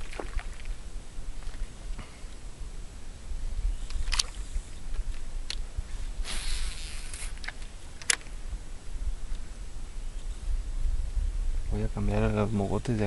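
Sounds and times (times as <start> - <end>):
steady low rumble: 0.0 - 6.2, 7.5 - 13.0
brief hiss: 5.9 - 7.6
fishing reel clicks: 6.3 - 8.2.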